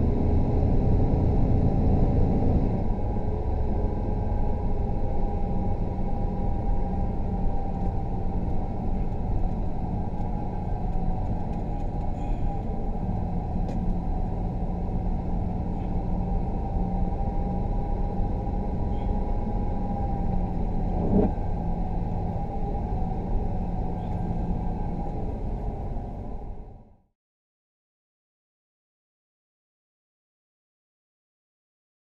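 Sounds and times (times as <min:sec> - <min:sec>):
car engine and tyre rumble: 0:00.0 - 0:27.0.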